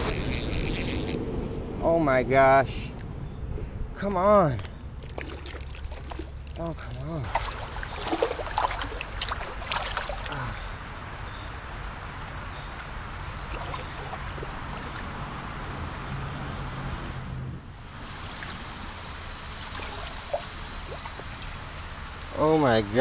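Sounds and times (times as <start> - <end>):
shallow running water: 4.7 - 23.0
fish thrashing and splashing: 4.9 - 6.6, 7.3 - 10.7, 13.0 - 15.7, 19.5 - 21.5.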